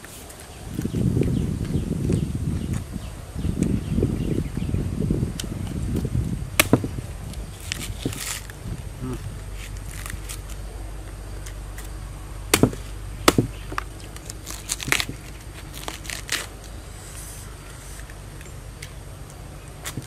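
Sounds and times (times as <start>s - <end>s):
knife crunching through palm heart: 5.4s - 16.8s, 19.7s - 20.0s.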